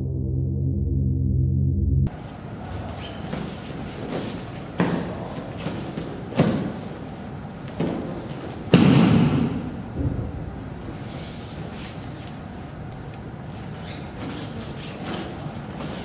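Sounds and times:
bodies thudding on gym mats: 2.8s - 11.3s.

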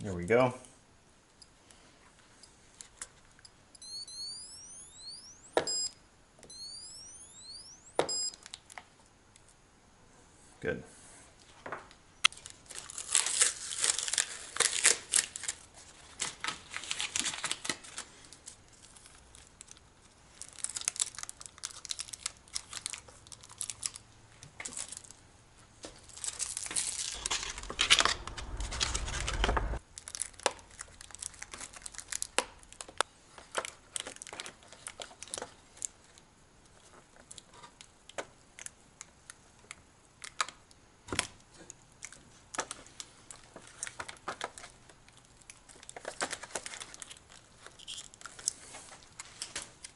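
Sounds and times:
tape pulled off roll and torn: 12.3s - 19.8s
plastic crinkling: 12.3s - 25.2s, 25.8s - 28.6s, 30.0s - 36.2s, 42.1s - 49.9s
low rumble of handling: 26.8s - 29.8s.

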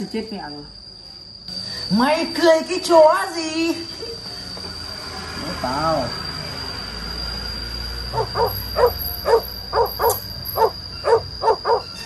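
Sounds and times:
dog barking: 8.1s - 12.0s.

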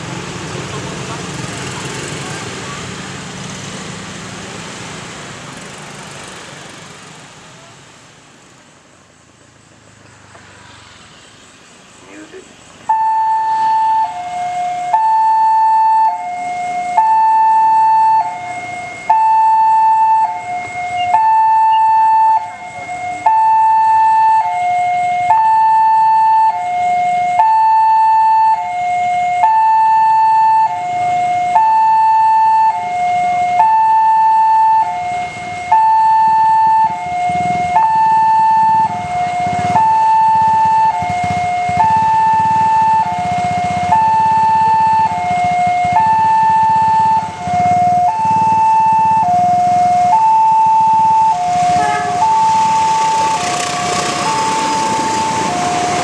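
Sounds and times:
level crossing two-tone alarm: 12.9s - 56.0s.

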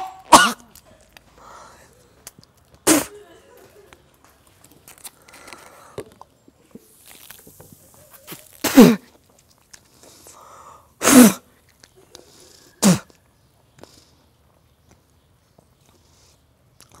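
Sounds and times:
man coughing and sneezing: 0.0s - 0.7s, 2.8s - 3.4s, 8.6s - 9.1s, 11.0s - 11.4s, 12.8s - 13.1s.

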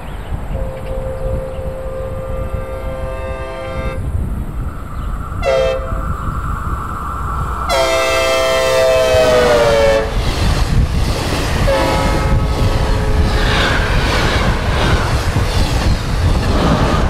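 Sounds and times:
train rumble and clatter: 0.0s - 17.0s
train horn blasts: 0.5s - 4.1s, 5.4s - 6.1s, 7.7s - 10.2s, 11.7s - 13.4s.

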